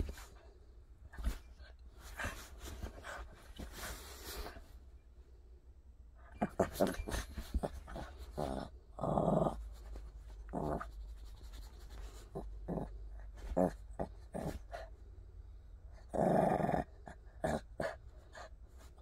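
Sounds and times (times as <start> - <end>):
small dog growling: 6.4 - 9.8, 10.5 - 10.9, 12.3 - 14.9, 16.0 - 18.0.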